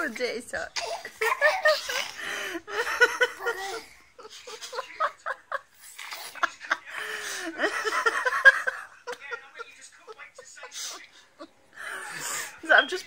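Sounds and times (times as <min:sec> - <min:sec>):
high-pitched giggling laughter: 0:01.0 - 0:06.8.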